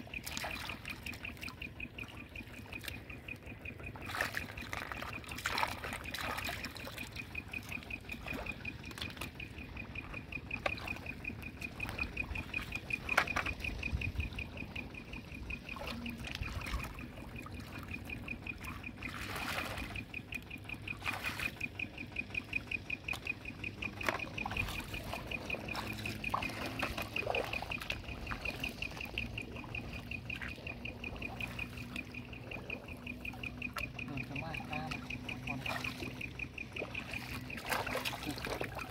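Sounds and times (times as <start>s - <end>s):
high fast-pulsing trill: 0.0s - 38.9s
hands splashing in muddy water: 4.0s - 7.2s, 18.6s - 20.0s, 37.0s - 38.9s.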